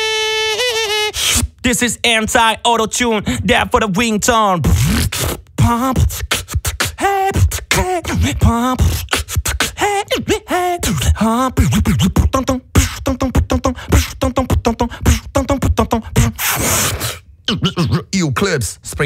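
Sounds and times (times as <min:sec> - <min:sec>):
beatboxing drum hits and clicks: 0:04.6 - 0:18.1
person singing wobbling notes: 0:05.6 - 0:16.5.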